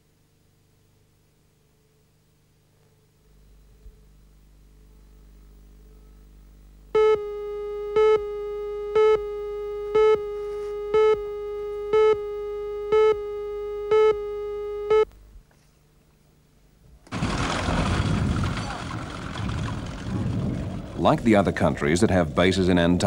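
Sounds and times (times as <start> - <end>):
steady pitched tone: 3.2 - 15.2
short beeps: 7.0 - 15.1.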